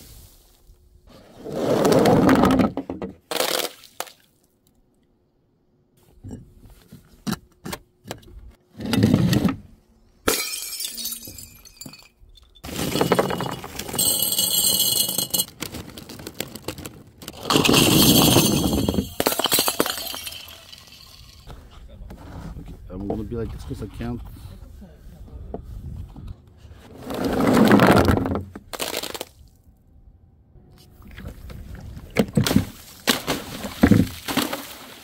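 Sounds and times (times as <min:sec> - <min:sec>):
glass jar shattering on concrete: 0:10.3 - 0:15.5, 0:17.4 - 0:21.5
glass smashing and crunching: 0:10.3 - 0:15.6, 0:17.3 - 0:21.5
snack puffs rattling into glass jar: 0:12.4 - 0:21.4.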